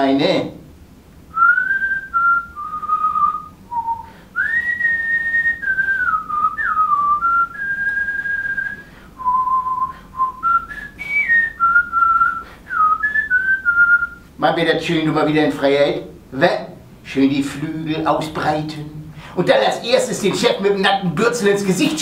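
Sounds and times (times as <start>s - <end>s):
person whistling a tune: 1.3s - 14.2s.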